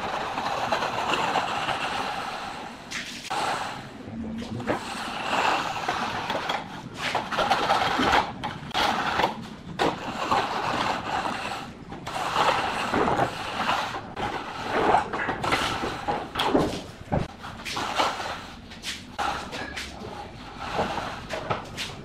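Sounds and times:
metal straightedge scraping wet concrete: 0.0 - 3.9, 4.6 - 16.8, 17.6 - 22.0.

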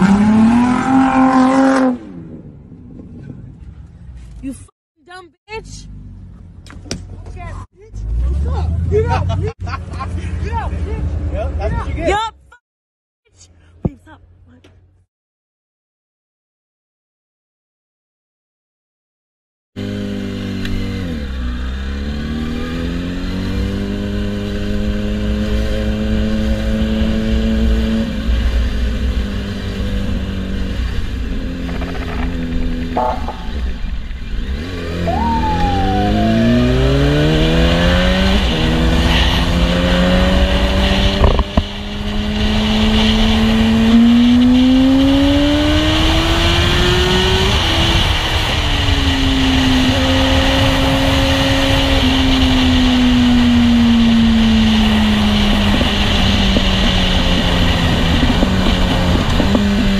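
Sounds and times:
motorcycle engine accelerating: 0.0 - 3.8, 19.8 - 59.9
low wind rumble: 0.0 - 4.4, 20.7 - 59.9.

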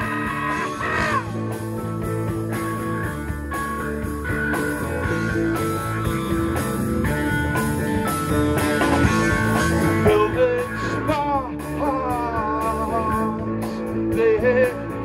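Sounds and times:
guitar pitch glides: 0.0 - 13.4
live rock band playing: 0.0 - 15.0.

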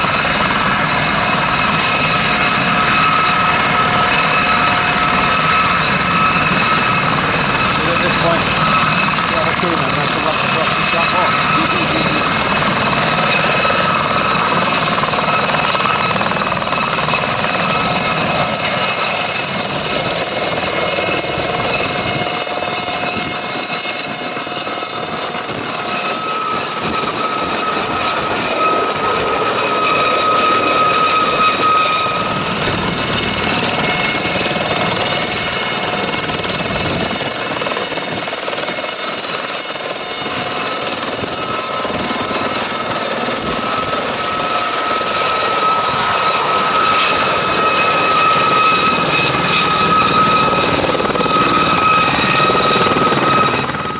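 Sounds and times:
helicopter turbine whine: 0.0 - 53.9
main rotor rush: 4.3 - 39.4.

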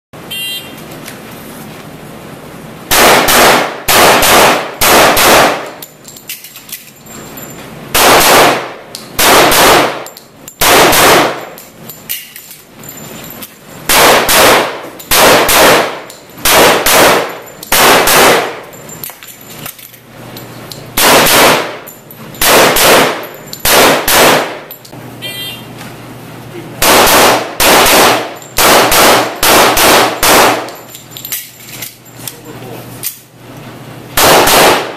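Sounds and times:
pistol shots echoing indoors: 2.9 - 5.8, 7.9 - 11.5, 13.9 - 18.6, 21.0 - 24.7, 26.8 - 30.8, 34.2 - 34.9.

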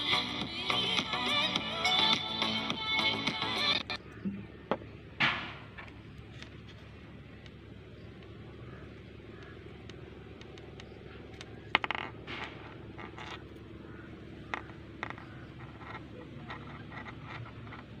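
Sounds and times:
faint steady hum: 0.0 - 18.0
light scraping and rustling: 11.3 - 18.0.

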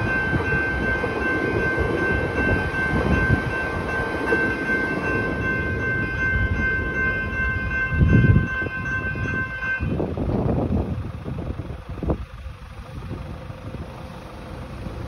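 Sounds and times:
level crossing bell ringing: 0.0 - 10.0
electric train rumble: 0.0 - 15.0.

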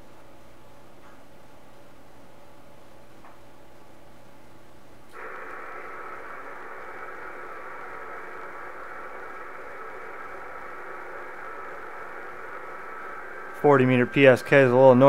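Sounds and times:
faint digital signal tones: 5.1 - 15.0
radio static hiss: 5.1 - 15.0.

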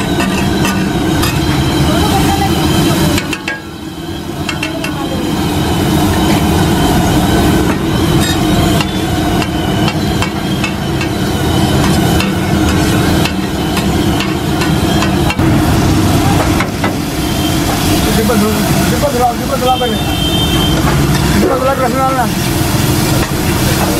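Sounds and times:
metal spatula clanking on griddle: 0.0 - 1.7, 3.1 - 3.7, 4.4 - 5.0, 7.7 - 11.2, 20.8 - 21.7
low rumble: 15.3 - 18.8.

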